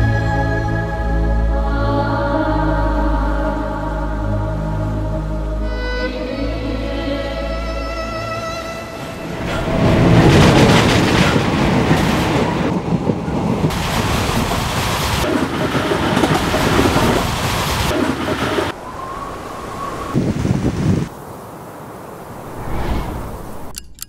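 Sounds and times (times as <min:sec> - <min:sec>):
train wheels rumbling on rails: 0:09.0 - 0:20.0.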